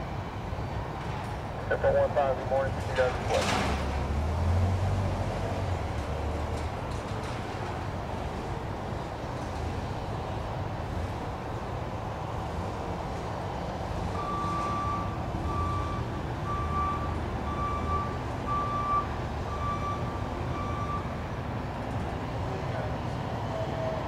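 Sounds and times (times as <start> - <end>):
reversing alarm beeping: 14.1 - 21.2.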